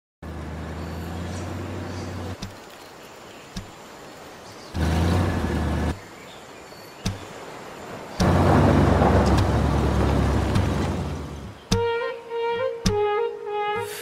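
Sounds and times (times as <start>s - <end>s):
low rumbling: 8.2s - 11.7s.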